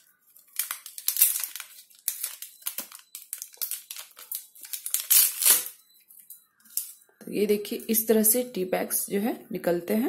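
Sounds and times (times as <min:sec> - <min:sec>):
foil sachet crinkling: 0:00.0 - 0:05.8.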